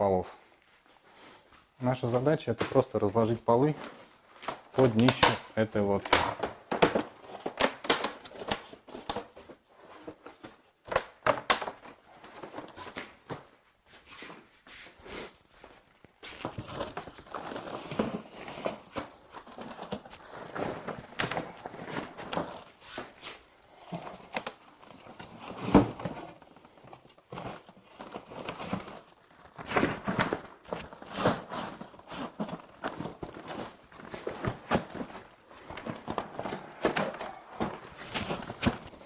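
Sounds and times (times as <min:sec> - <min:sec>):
shuffling steps on tiles: 0:00.1 - 0:05.2, 0:11.8 - 0:39.0
plastic fabric rustling: 0:00.5 - 0:39.0.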